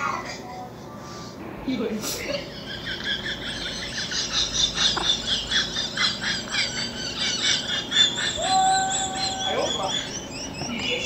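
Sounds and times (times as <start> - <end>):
high-pitched chirping: 6.6 - 11.0.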